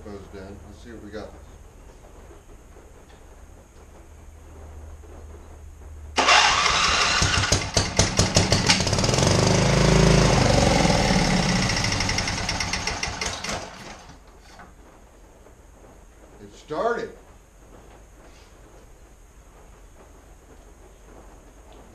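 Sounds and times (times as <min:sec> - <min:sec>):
electric starter cranking engine: 0:06.2 - 0:14.2.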